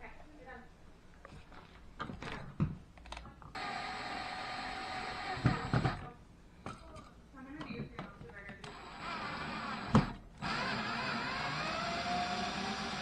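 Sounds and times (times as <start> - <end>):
cordless drill motor running: 3.5 - 6.1, 8.6 - 13.0.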